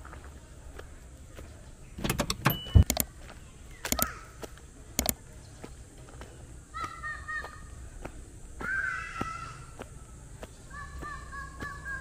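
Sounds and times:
sharp clicks and knocks: 0:02.0 - 0:03.1, 0:05.0 - 0:05.2.

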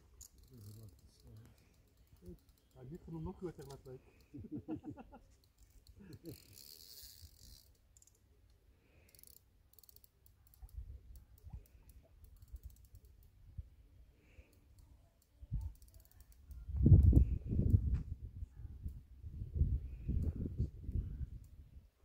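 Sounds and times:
fishing reel clicking: 0:00.1 - 0:04.4, 0:05.4 - 0:13.4, 0:14.5 - 0:17.3.

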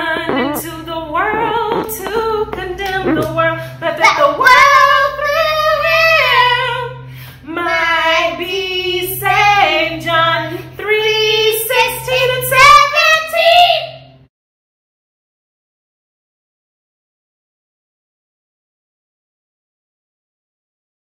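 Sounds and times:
woman and girl singing: 0:00.0 - 0:14.0.

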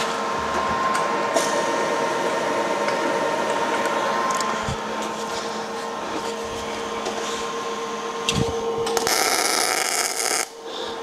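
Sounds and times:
machine hum: 0:00.0 - 0:11.0
welding arc buzzing: 0:04.3 - 0:10.6.

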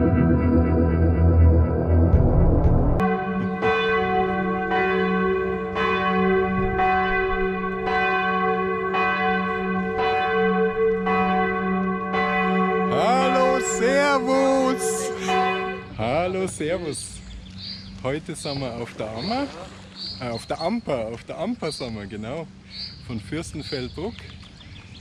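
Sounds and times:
church bell tolling: 0:03.0 - 0:16.4.

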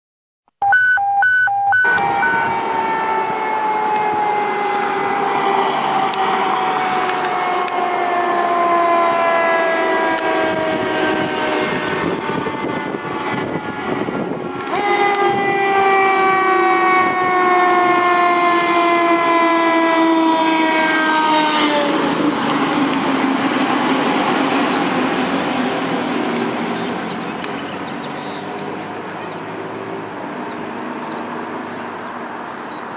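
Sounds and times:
siren wailing: 0:00.6 - 0:22.0.

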